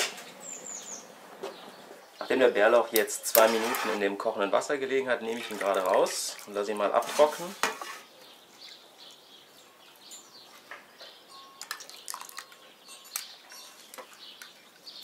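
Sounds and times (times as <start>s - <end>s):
small birds chirping: 0.2s - 15.0s
water dripping and trickling: 5.2s - 6.9s, 11.6s - 15.0s.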